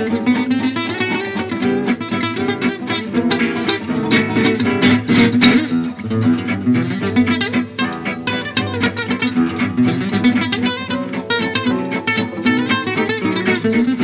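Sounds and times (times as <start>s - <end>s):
guitar plucking quick notes: 0.0s - 14.0s.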